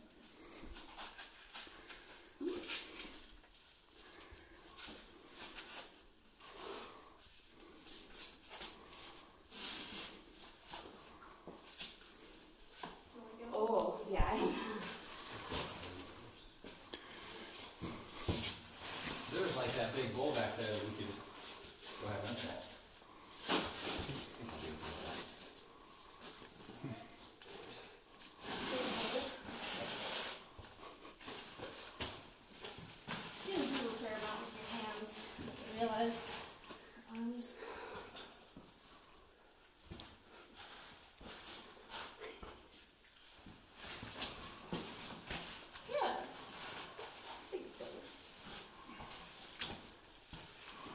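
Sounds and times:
person breathing: 6.4 - 10.3, 14.4 - 18.4, 24.5 - 29.2, 36.7 - 39.5.

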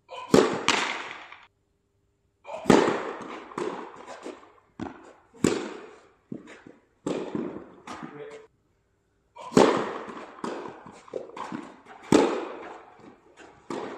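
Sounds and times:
tennis ball struck by racket: 0.3 - 1.5, 2.6 - 8.2, 9.5 - 13.9
tennis ball bouncing on court: 2.6 - 8.2, 9.5 - 13.9.

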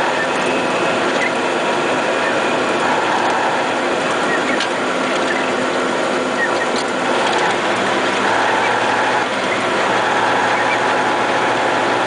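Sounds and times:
truck engine and road noise: 0.0 - 12.0
mechanical rattling: 2.2 - 12.0.

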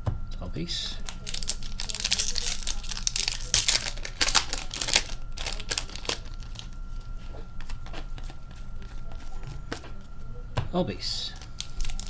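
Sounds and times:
foil wrapper tearing and crackling: 1.0 - 6.8, 11.3 - 12.0.

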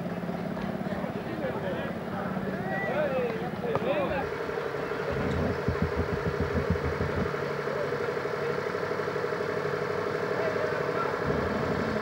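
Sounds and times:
vehicle engine running at low revs: 0.0 - 12.0.

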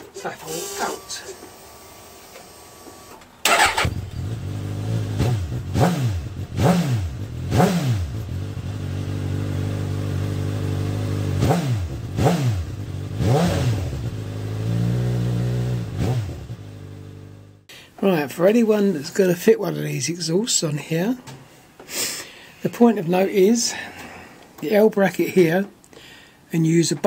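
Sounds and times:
motorcycle engine revving and idling: 3.5 - 17.7.

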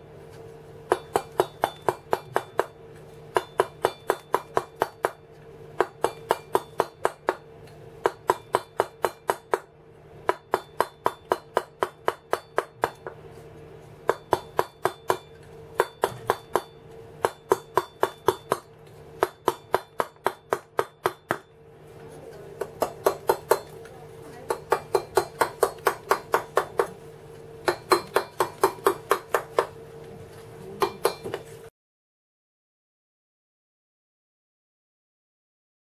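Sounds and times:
mallet tapping chisel into stone: 0.9 - 5.2, 5.8 - 7.4, 8.0 - 9.7, 14.1 - 21.5, 24.5 - 27.0, 27.6 - 29.7, 30.8 - 31.5.

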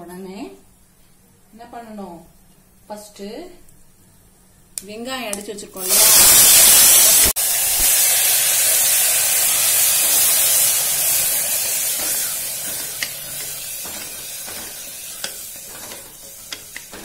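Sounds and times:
onion paste sizzling in ghee: 5.8 - 17.0
wooden spatula scraping and tapping: 12.0 - 17.0.

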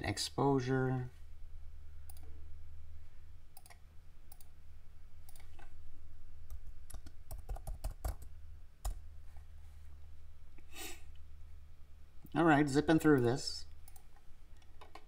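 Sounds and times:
low steady hum: 0.0 - 15.0
computer mouse clicks: 2.0 - 2.3, 3.6 - 4.5, 5.3 - 5.7, 13.8 - 15.0.

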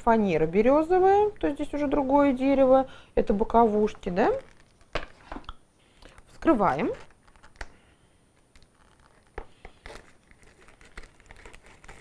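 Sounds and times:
plastic film crinkling: 3.5 - 12.0
scissors cutting plastic film: 8.5 - 12.0.

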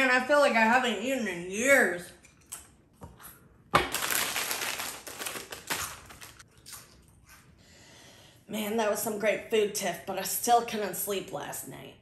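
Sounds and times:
chips crunching: 3.8 - 6.4.

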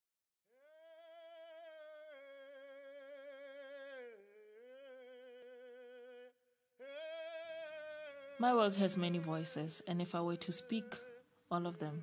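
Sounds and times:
person humming with vibrato: 0.5 - 9.5.

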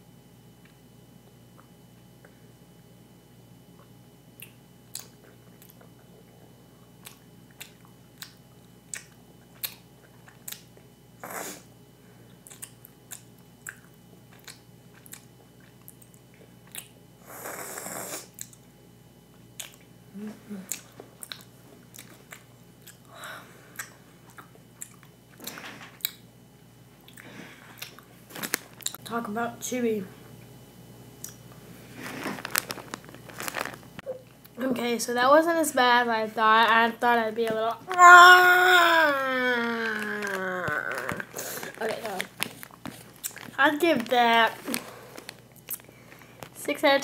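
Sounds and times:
mouth chewing candy: 3.8 - 11.7, 12.3 - 18.7, 19.6 - 23.1, 23.7 - 26.2, 39.6 - 46.6
wet chewing clicks and smacks: 4.4 - 6.2, 7.0 - 10.8, 12.4 - 17.0, 18.4 - 18.7, 19.6 - 19.9, 20.7 - 23.1, 23.8 - 26.2.

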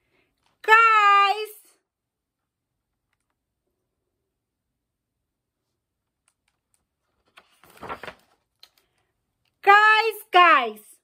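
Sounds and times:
book pages turning: 6.3 - 9.0
paper rustling: 6.5 - 9.0.

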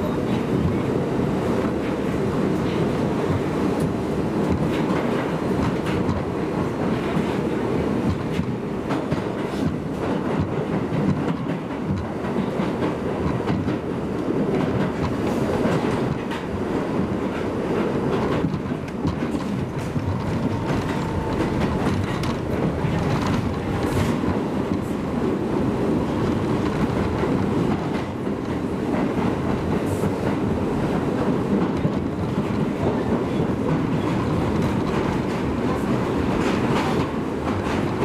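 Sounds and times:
train wheels rumbling on rail: 0.0 - 38.0
wheels clicking over rail joints: 17.8 - 25.1.

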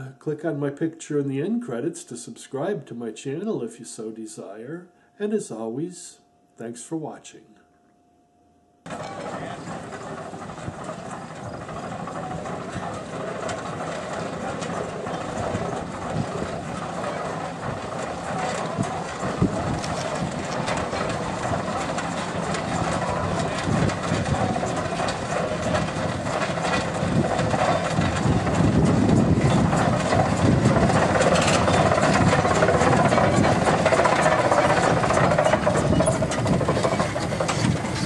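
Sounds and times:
mechanical clatter: 8.9 - 38.0
steam traction engine running: 8.9 - 38.0.

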